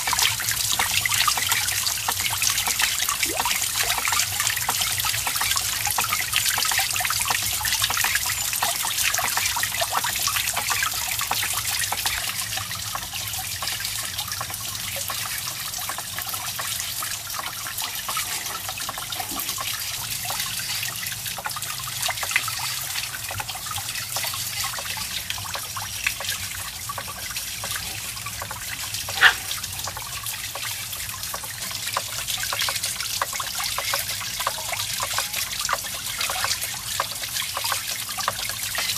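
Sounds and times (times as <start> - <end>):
water trickling and splashing: 0.0 - 38.9.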